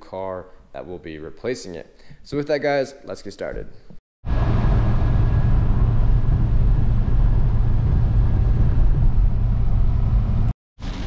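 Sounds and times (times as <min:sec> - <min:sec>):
wind noise: 0:04.3 - 0:10.5
car engine drone: 0:04.3 - 0:11.0.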